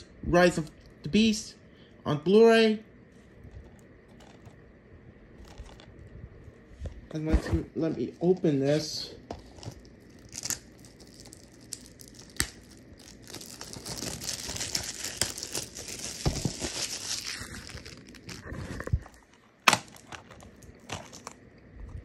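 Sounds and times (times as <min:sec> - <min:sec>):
plastic wrap crinkling: 0:03.2 - 0:04.7, 0:05.3 - 0:06.9, 0:09.2 - 0:21.4.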